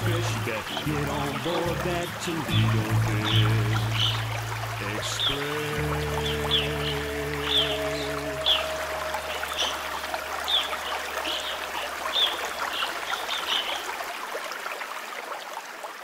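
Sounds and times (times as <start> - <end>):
bird chirping: 0.0 - 14.0
water trickling in a stream: 0.0 - 16.0.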